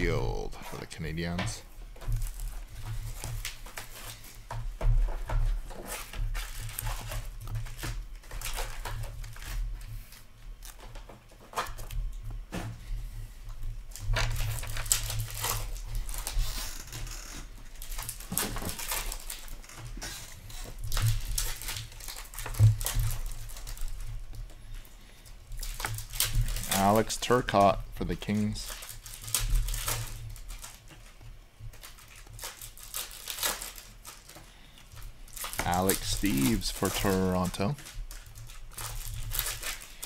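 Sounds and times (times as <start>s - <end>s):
trading cards shuffled by hand: 25.7s - 31.2s, 35.4s - 40.0s.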